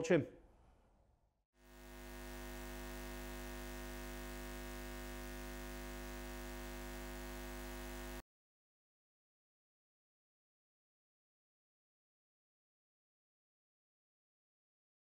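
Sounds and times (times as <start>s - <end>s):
neon sign buzzing hum: 1.6s - 8.2s.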